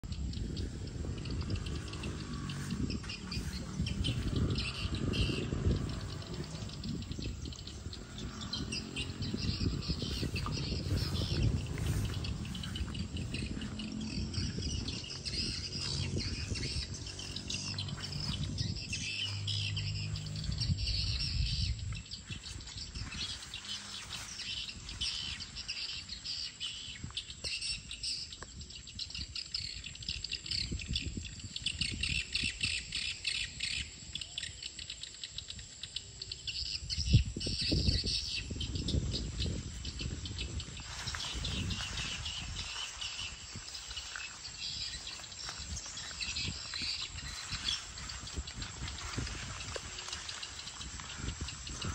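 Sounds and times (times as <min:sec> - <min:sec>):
low rumble: 0:00.0 - 0:26.3.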